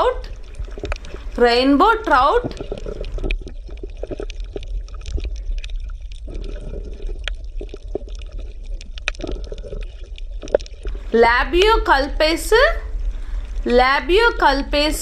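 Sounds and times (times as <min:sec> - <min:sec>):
underwater stream gurgling: 0:00.0 - 0:15.0
small irregular clicks: 0:00.4 - 0:01.4, 0:02.4 - 0:11.1.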